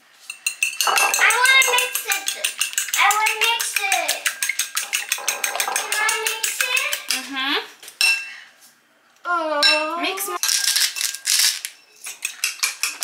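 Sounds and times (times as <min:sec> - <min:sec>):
cutlery clinking on a dish: 0:00.3 - 0:07.2.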